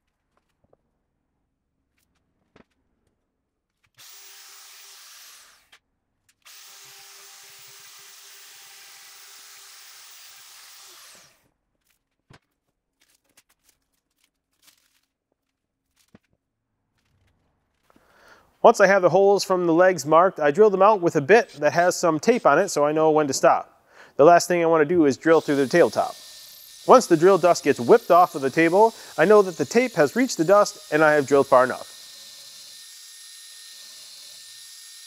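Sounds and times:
router whining: 4.0s - 5.7s, 6.4s - 11.4s, 25.0s - 35.0s.

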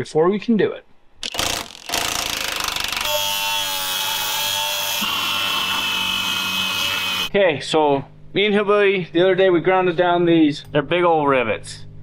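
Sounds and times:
impact wrench hammering: 1.2s - 3.3s
angle grinder whining: 1.2s - 7.3s.

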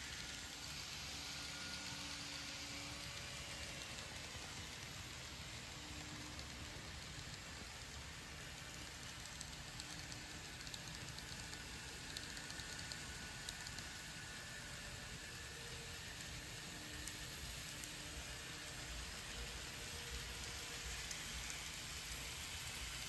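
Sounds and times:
model train rolling hiss: 0.0s - 23.0s.

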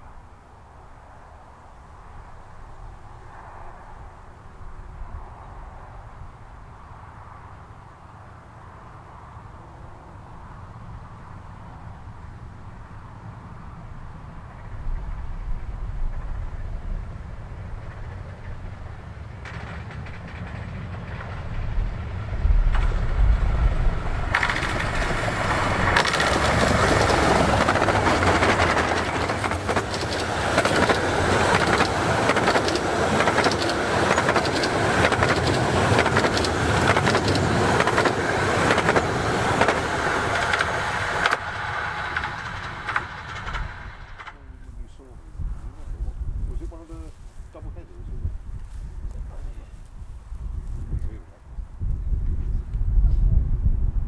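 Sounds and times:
steam train passing: 8.4s - 50.8s
wheels clattering over rails: 14.5s - 44.6s.

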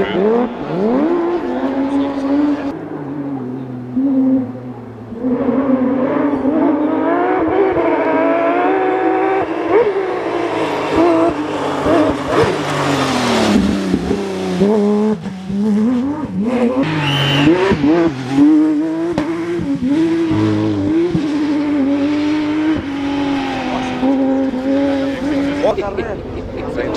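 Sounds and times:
rally car engine revving: 0.0s - 26.9s
brief high squeal: 16.9s - 17.7s.

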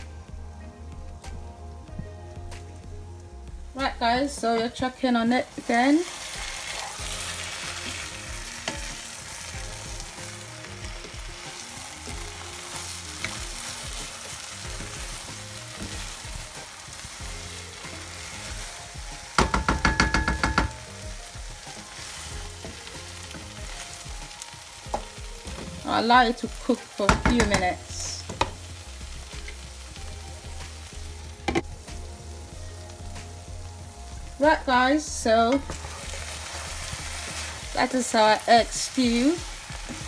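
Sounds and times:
stew sizzling in a frying pan: 0.1s - 40.0s
spatula clattering against pan: 19.4s - 20.8s.

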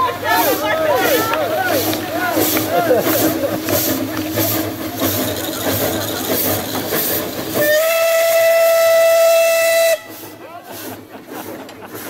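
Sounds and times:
steam locomotive chuffing: 0.0s - 12.0s
steam whistle blast: 7.6s - 10.2s.

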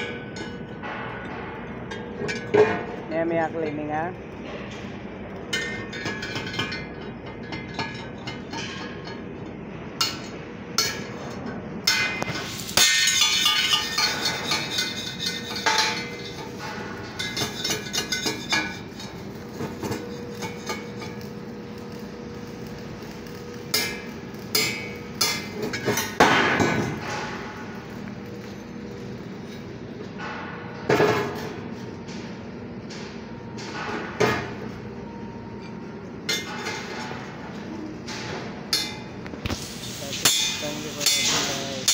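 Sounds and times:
steel parts clanking: 10.0s - 34.6s, 35.5s - 41.9s.

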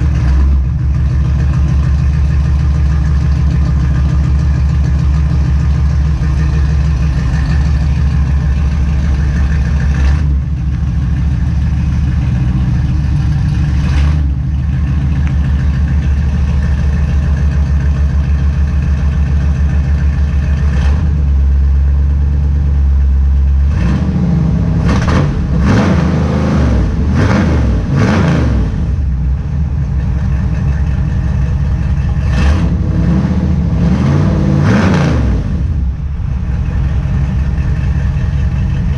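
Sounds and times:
engine revving: 0.0s - 17.7s, 19.0s - 38.9s
engine idling: 0.0s - 38.9s.

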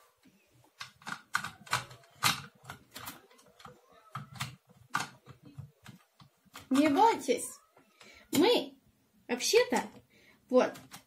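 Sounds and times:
plastic toy pieces clicking: 0.8s - 7.1s, 10.7s - 11.0s.

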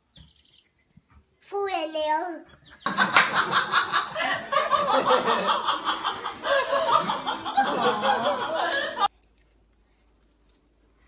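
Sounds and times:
people laughing: 2.8s - 9.1s.

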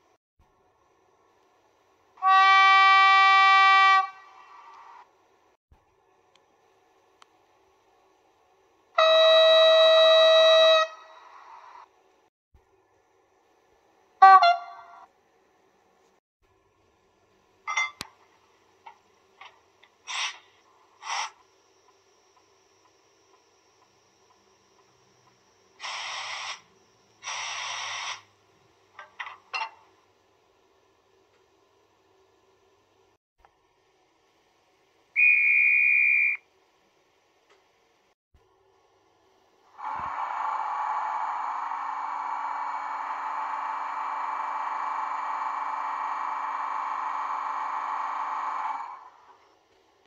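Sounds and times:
model train air compressor sound: 20.0s - 22.0s, 25.7s - 28.4s, 39.7s - 49.4s
hiss bursts: 20.1s - 21.5s, 25.8s - 28.3s.

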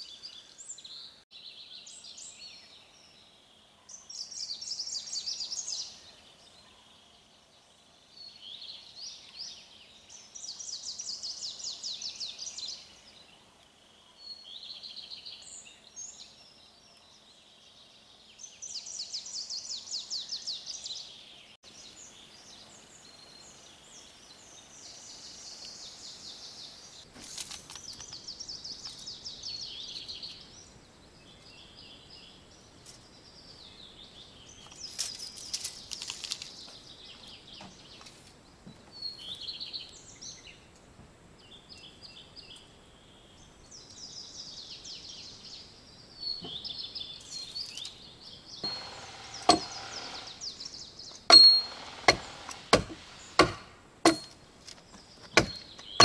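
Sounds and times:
small birds chirping and trilling: 0.0s - 56.0s
wood being struck: 48.6s - 50.3s, 51.2s - 54.4s, 55.2s - 56.0s.

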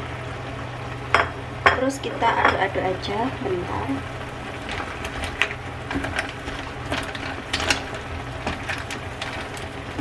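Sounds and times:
low steady hum: 0.0s - 10.0s
clam shells clicking in a pan: 4.7s - 10.0s.

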